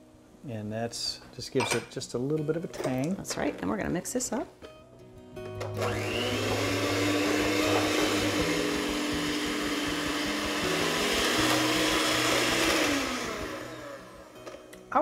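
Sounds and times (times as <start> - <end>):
electric mixer whirring: 5.6 - 14.6.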